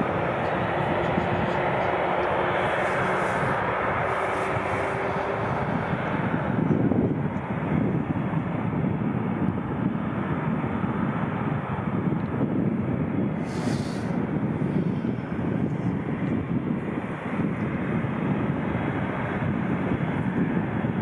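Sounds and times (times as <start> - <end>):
faint engine whine: 0.0 - 21.0
jet engines rumbling: 0.0 - 21.0.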